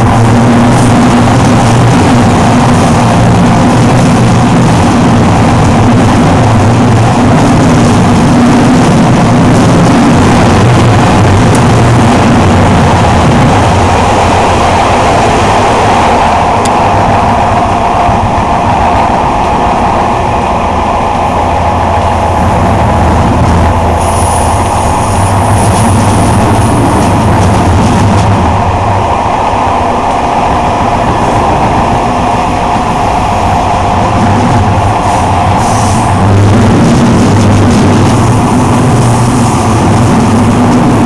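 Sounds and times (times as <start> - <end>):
train motor hum and wheels: 0.0 - 41.0
high-pitched whine: 8.9 - 40.1.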